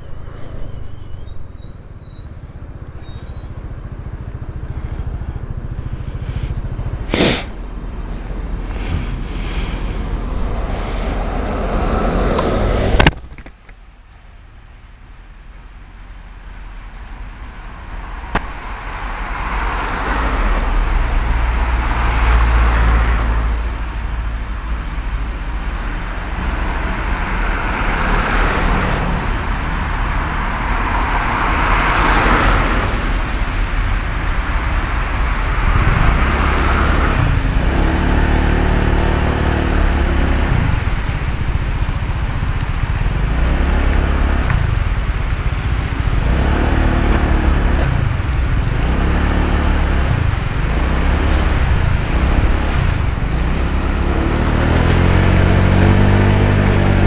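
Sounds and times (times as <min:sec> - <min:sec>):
wind rumble on microphone: 0:00.0 - 0:13.9, 0:16.6 - 0:57.0
traffic passing: 0:00.0 - 0:57.0
scooter engine: 0:02.3 - 0:13.1, 0:24.8 - 0:57.0.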